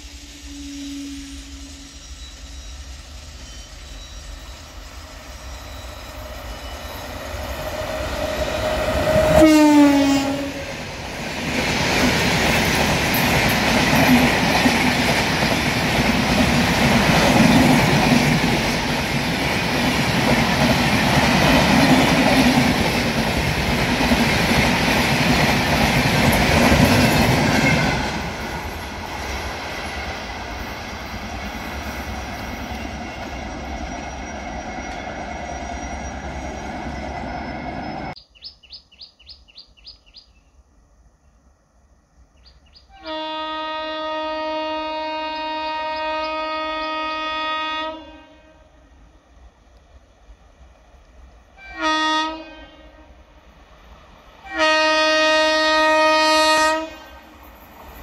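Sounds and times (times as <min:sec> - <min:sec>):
train horn: 0:00.0 - 0:02.7, 0:07.5 - 0:10.8, 0:42.9 - 0:48.9, 0:51.6 - 0:53.2, 0:54.4 - 0:57.4
train wheels rumbling and clattering: 0:10.7 - 0:38.2.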